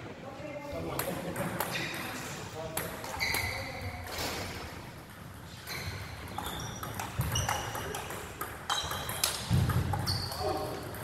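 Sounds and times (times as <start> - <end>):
table tennis balls clicking: 5.0 - 11.0.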